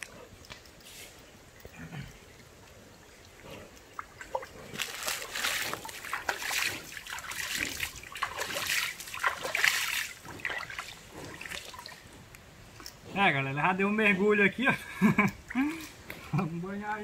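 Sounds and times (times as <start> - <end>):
water splashing: 2.0 - 12.2.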